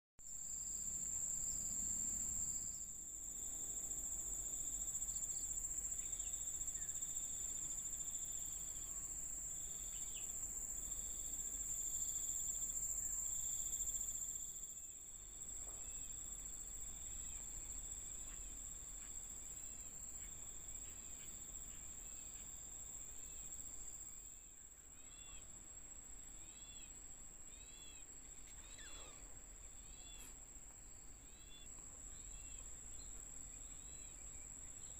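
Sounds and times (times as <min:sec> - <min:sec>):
low insect trill: 0:00.2 - 0:34.9
high-pitched insect drone: 0:27.5 - 0:30.3.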